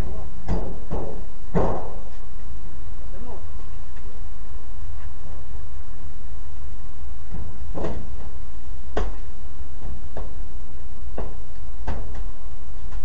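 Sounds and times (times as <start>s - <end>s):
knocks on sheet metal: 0.5s - 2.0s.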